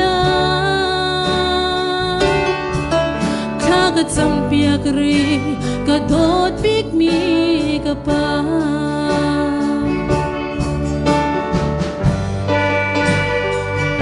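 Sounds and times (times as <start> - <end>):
woman singing into microphone: 0.0 - 10.9
instrumental accompaniment: 0.0 - 14.0.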